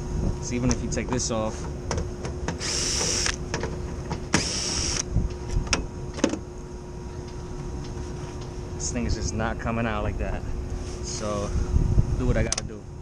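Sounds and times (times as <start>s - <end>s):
cordless drill drilling: 2.6s - 3.4s, 4.4s - 5.0s.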